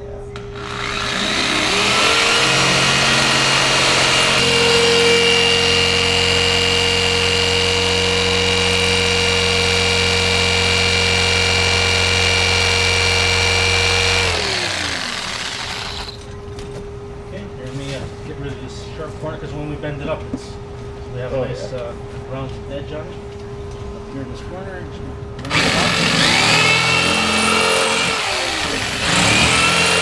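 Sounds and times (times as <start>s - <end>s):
jigsaw cutting plastic: 0.4s - 16.3s, 25.4s - 30.0s
jigsaw motor winding down: 0.4s - 16.3s, 25.4s - 30.0s.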